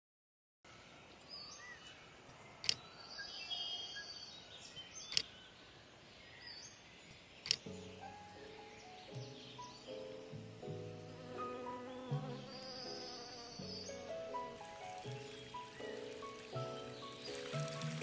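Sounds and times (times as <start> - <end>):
bird chirps: 0.7 - 18.0
sharp clicks: 2.6 - 2.8, 5.1 - 5.3, 7.1 - 7.8
music: 7.6 - 18.0.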